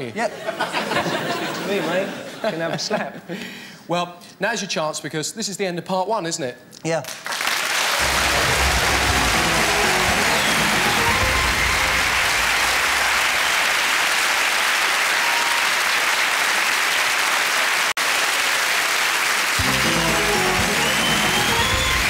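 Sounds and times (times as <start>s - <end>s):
audience applauding: 7.1s - 22.0s
music: 8.0s - 13.5s, 19.6s - 22.0s.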